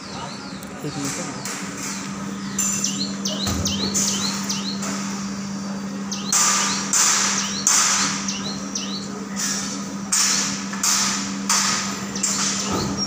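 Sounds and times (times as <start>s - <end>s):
bird chirps: 0.0s - 10.4s, 12.0s - 13.0s
hydraulic lift humming: 0.0s - 13.0s.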